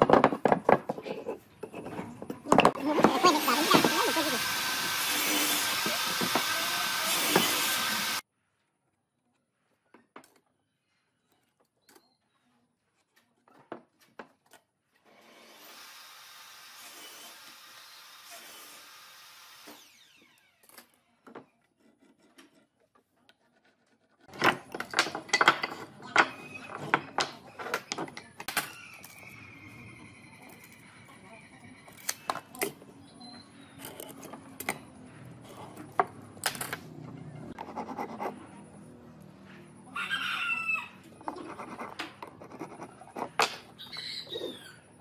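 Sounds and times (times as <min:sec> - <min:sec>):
power tool running: 0:03.1 - 0:08.2, 0:15.3 - 0:20.6.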